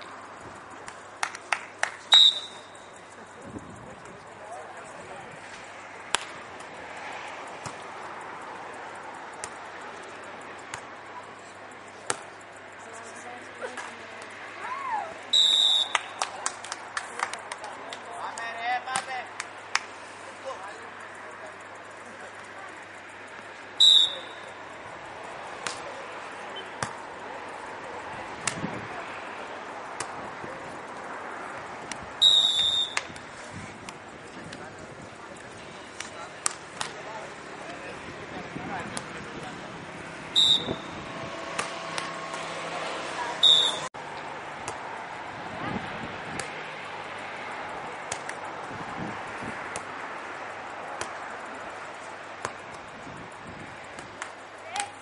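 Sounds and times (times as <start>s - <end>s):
hands slapping volleyball: 0.8s - 2.1s, 6.1s - 6.7s, 10.7s - 10.9s, 15.8s - 19.9s, 25.6s - 25.9s, 28.4s - 28.7s, 30.0s - 30.2s, 31.8s - 32.1s, 36.0s - 37.0s, 41.5s - 42.5s, 46.3s - 46.6s, 48.0s - 48.4s, 49.7s - 50.0s, 51.0s - 51.3s, 54.0s - 55.0s
volleyball hits: 25.6s - 25.9s, 40.6s - 42.5s, 49.7s - 50.0s.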